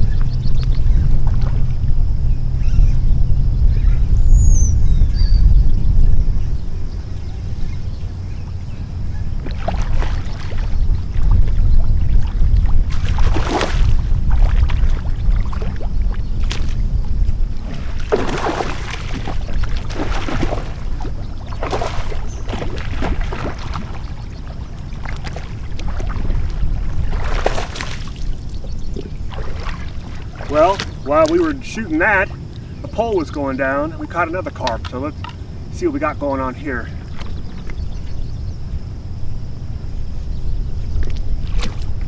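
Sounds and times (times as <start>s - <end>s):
wind rumbling on microphone: 0.0s - 42.0s
man wading in water: 6.5s - 42.0s
fish splashing at the surface: 9.4s - 11.3s, 12.2s - 16.8s, 17.6s - 31.5s.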